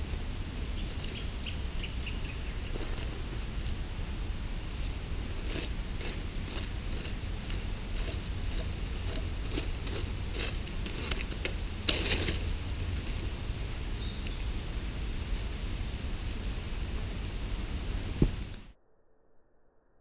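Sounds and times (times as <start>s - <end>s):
stick scraping through ash: 2.5s - 3.8s, 4.6s - 13.3s.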